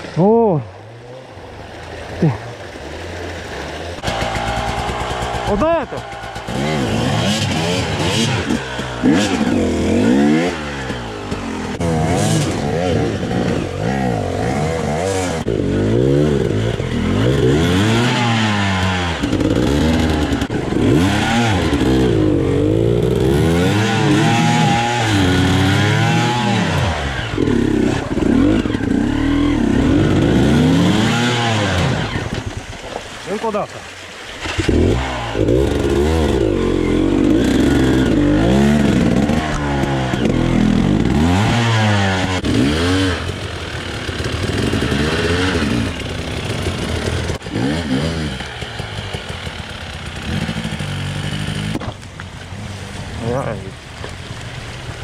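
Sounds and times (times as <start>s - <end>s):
motorcycle engine revving: 0.7s - 32.8s, 34.4s - 53.6s.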